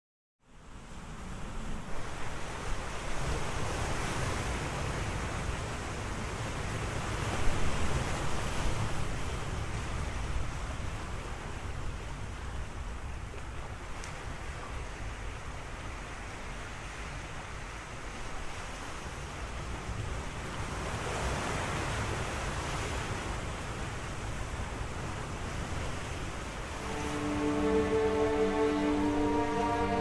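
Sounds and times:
sea surf washing onto shore: 20.7 - 30.0.

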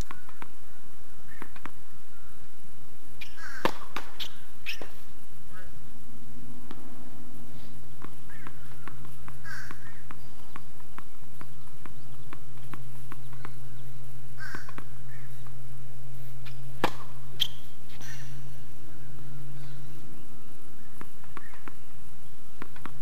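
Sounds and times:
bird calling: 0.0 - 2.6, 3.2 - 6.0, 7.6 - 15.6, 16.4 - 22.9
steady low hum: 0.0 - 23.0
racket striking tennis ball: 3.6 - 5.0, 16.8 - 17.6
tennis ball bouncing on hard court: 3.6 - 5.0, 8.0 - 13.6, 16.8 - 17.6.

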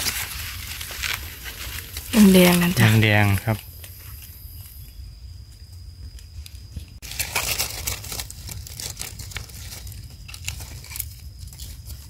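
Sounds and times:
dry leaves crackling: 0.0 - 4.4, 7.0 - 12.0.

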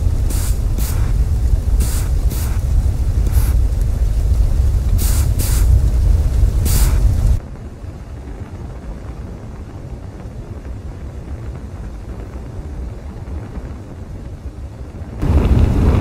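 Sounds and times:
faint hiss: 0.0 - 7.4
steady low rumble: 0.0 - 16.0.

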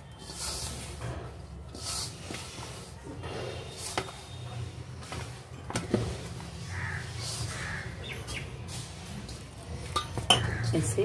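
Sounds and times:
hand kneading dough: 0.0 - 7.7.

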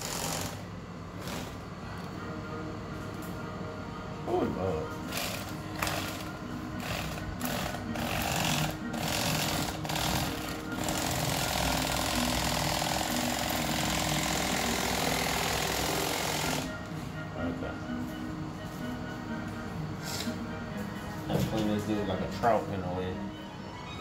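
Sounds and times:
electric knife buzzing: 0.0 - 1.6, 5.0 - 16.8.

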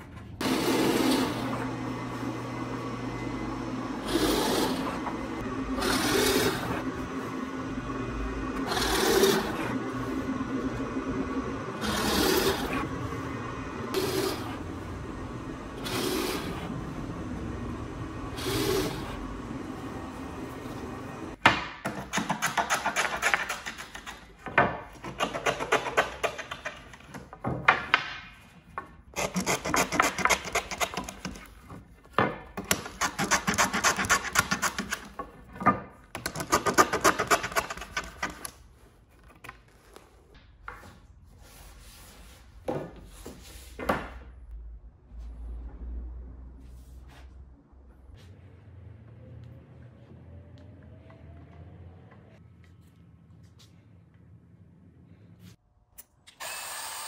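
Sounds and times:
drill press boring into wood: 56.4 - 57.0.

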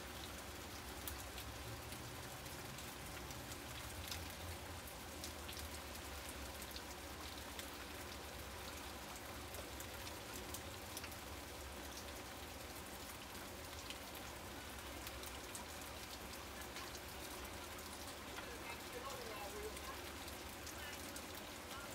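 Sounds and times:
close raindrops ticking: 0.0 - 21.9
steady rain on grass: 0.0 - 21.9.

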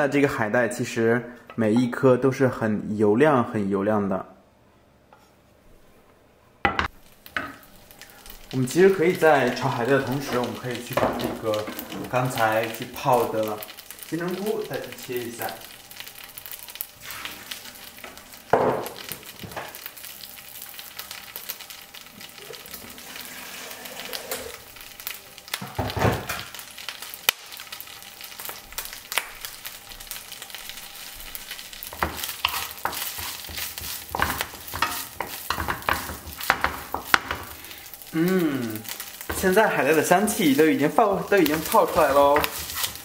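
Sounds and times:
food sizzling in hot oil: 6.8 - 43.0
wooden spatula scraping pan: 22.9 - 24.6, 39.3 - 43.0.

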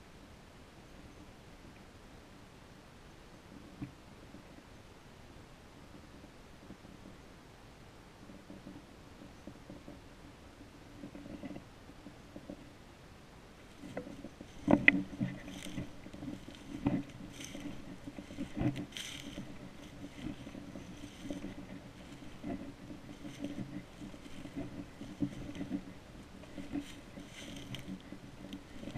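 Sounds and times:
footsteps crunching dry leaves: 14.4 - 28.9.

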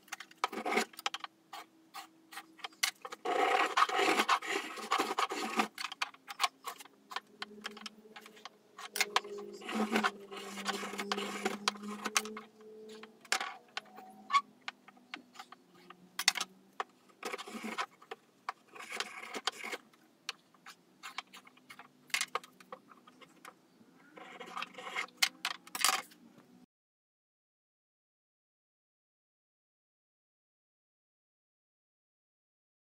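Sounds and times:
spokeshave shaving wood: 0.0 - 13.6, 14.6 - 23.5
hand tools clicking and tapping: 0.0 - 23.6
scraping on wood: 0.1 - 19.9, 24.1 - 26.2.

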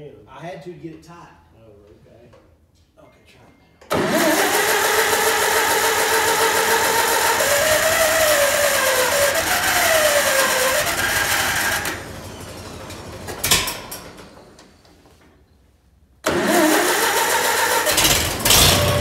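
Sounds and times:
tractor starter cranking engine: 3.9 - 14.8, 16.2 - 19.0.

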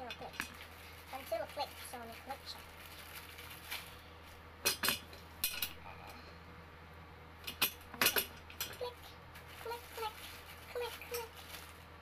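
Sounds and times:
chair parts clicking and knocking: 4.6 - 5.8, 7.4 - 8.8.

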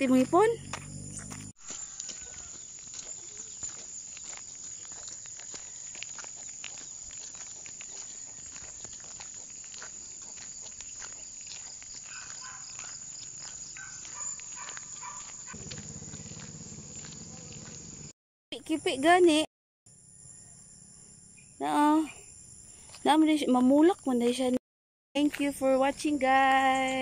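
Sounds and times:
high insect chorus: 0.1 - 18.1
footsteps on concrete: 0.2 - 18.1.

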